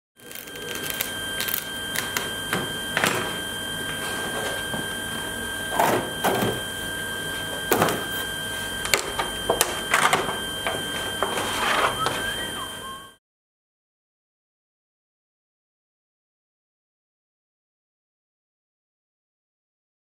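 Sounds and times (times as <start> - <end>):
steady high hum: 0.2 - 13.2.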